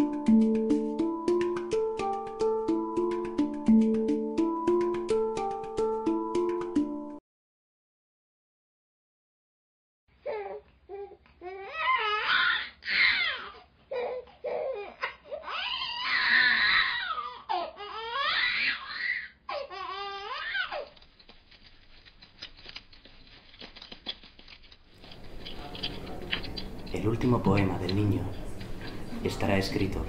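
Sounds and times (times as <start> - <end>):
baby babbling and crying: 10.2 - 20.9
faint clicks and rustle: 20.1 - 27.1.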